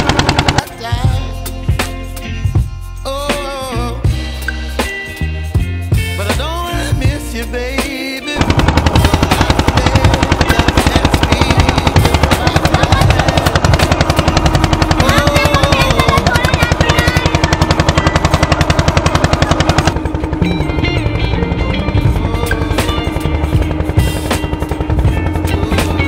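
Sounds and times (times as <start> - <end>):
boat engine knocking: 0.0 - 1.1, 8.4 - 26.0.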